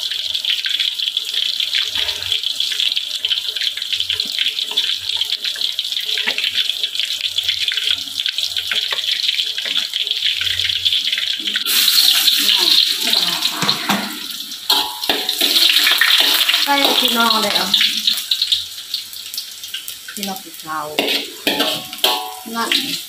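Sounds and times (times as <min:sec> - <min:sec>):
fish sizzling in hot oil: 0:00.0 - 0:23.0
oil spattering: 0:21.0 - 0:22.5.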